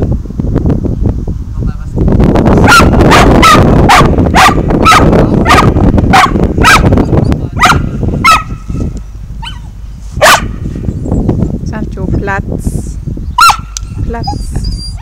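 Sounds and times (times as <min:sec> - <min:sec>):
dog barking: 0:02.6 - 0:07.0, 0:07.6 - 0:08.6, 0:09.4 - 0:09.6, 0:10.2 - 0:10.6, 0:13.4 - 0:13.8.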